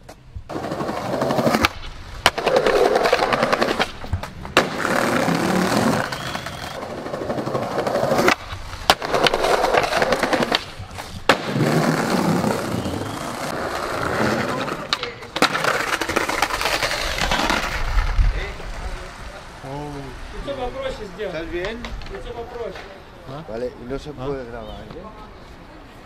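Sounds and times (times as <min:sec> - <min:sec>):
skateboard clacking on ground: 0:00.0 - 0:19.1, 0:21.6 - 0:23.0
skateboard wheels rolling on concrete: 0:00.0 - 0:26.0.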